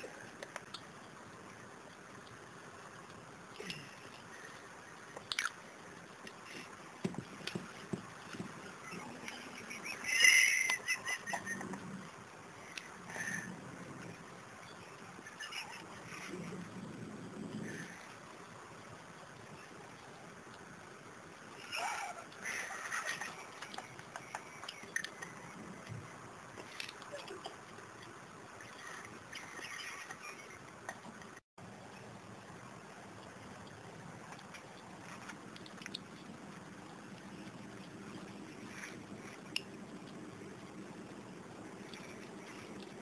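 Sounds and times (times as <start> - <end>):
small clicks and drips: 0.3 - 9.7, 33.0 - 43.0
high wavering animal call: 8.8 - 11.8.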